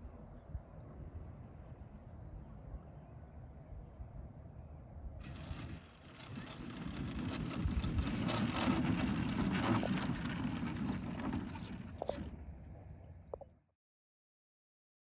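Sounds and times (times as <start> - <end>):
model airplane engine drone: 5.2 - 13.1.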